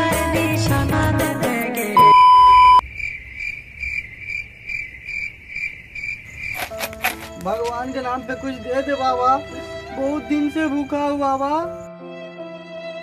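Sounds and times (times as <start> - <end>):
loud steady beep: 2.0 - 2.8
cricket chirp sound effect: 2.8 - 7.4.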